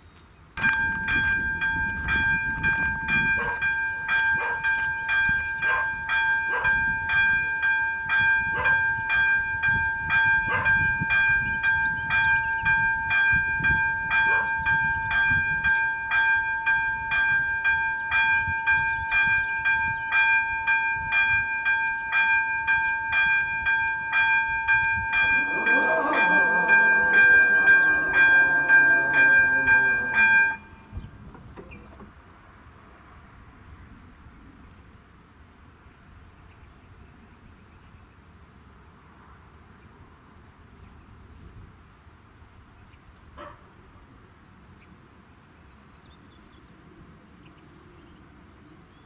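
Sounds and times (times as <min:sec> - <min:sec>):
level crossing bell ringing: 0:00.6 - 0:31.0
constant ringing tone: 0:00.6 - 0:31.1.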